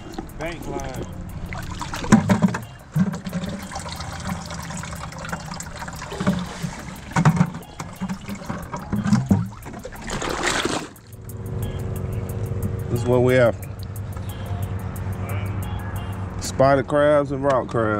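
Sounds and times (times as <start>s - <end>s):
seawater sloshing and dripping: 0.0s - 11.2s.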